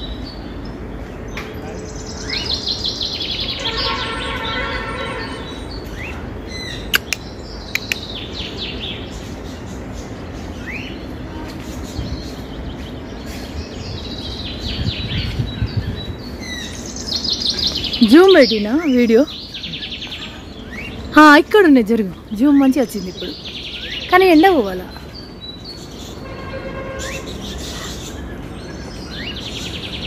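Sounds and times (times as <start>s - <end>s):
birds chirping and whistling: 0.0s - 30.0s
sharp clicks: 6.9s - 8.1s.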